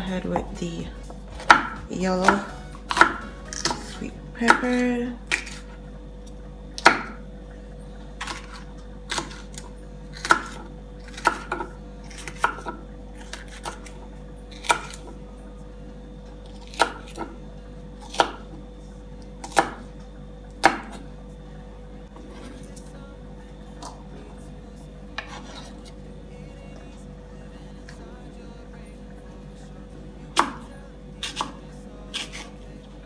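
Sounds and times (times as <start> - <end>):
knife chopping on wooden board: 1.3 - 5.6.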